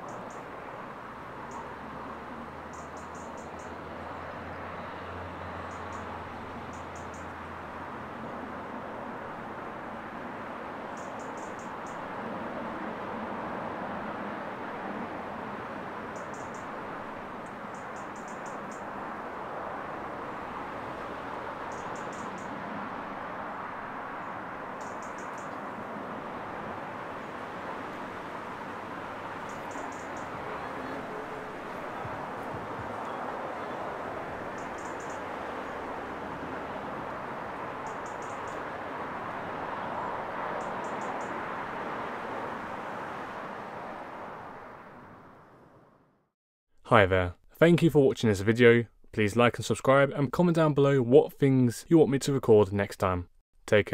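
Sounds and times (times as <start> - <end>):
town traffic: 0.0 - 51.3
small bird chirping: 2.7 - 3.8, 6.7 - 7.3, 11.0 - 12.0, 16.1 - 16.7, 17.4 - 18.9, 21.7 - 22.5, 24.8 - 25.6, 29.4 - 30.3, 34.5 - 35.2, 37.8 - 38.6.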